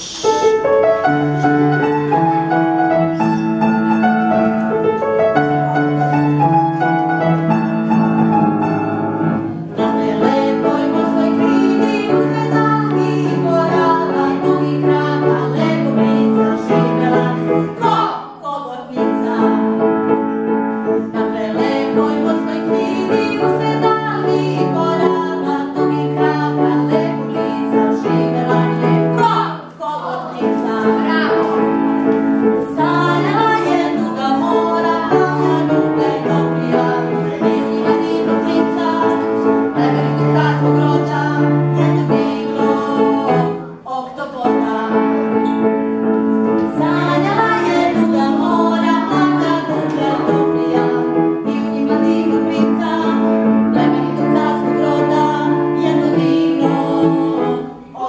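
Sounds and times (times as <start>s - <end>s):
upright piano playing: 0.0s - 58.0s
woman singing: 9.8s - 19.8s, 21.0s - 45.7s, 46.6s - 58.0s.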